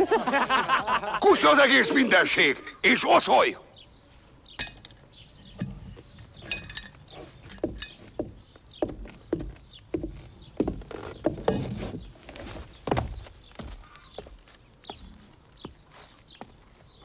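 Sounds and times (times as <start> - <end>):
feet stamping on wooden boards: 7.4 - 17.0.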